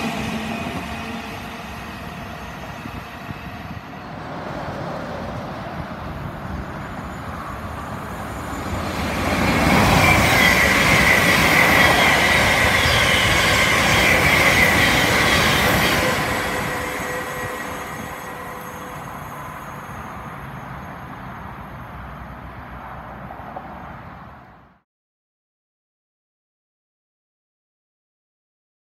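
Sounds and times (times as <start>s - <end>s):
train passing rumble: 0.0s - 24.7s
high ringing whine: 10.0s - 21.9s.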